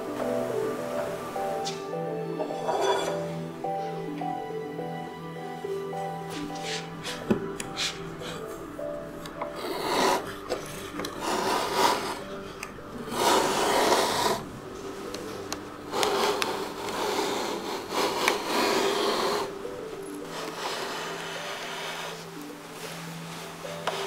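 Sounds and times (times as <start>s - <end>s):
blade rasping on wood: 9.4s - 14.5s, 15.9s - 19.6s, 20.2s - 22.4s.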